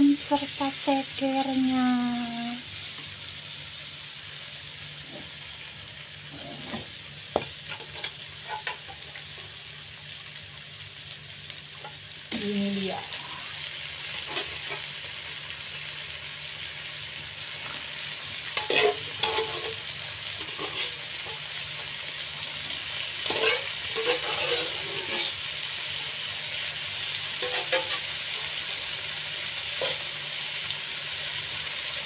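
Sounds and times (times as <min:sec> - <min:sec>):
chicken sizzling in a wok: 0:00.0 - 0:32.0
knocks and scrapes in wok: 0:18.6 - 0:19.8, 0:20.4 - 0:21.4, 0:23.2 - 0:25.4, 0:27.4 - 0:28.0.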